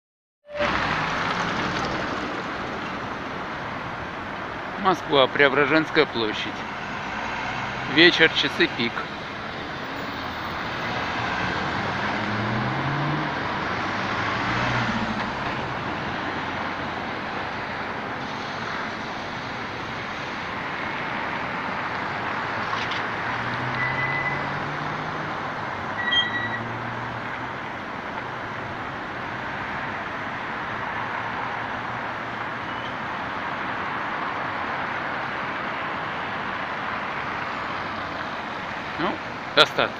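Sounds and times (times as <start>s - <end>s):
road traffic passing: 0.5s - 39.9s
engines revving pulling away: 5.6s - 17.6s, 18.2s - 25.9s
brief high squeaks: 23.8s - 24.5s, 26.0s - 26.7s, 32.6s - 33.0s.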